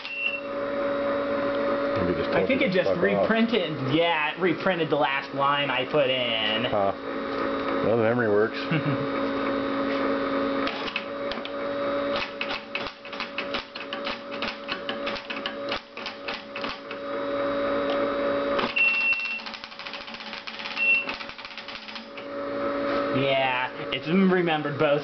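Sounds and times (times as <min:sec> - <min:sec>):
short high beep: 0:00.0 - 0:00.5, 0:18.8 - 0:19.4
steady machine hum: 0:00.0 - 0:25.0.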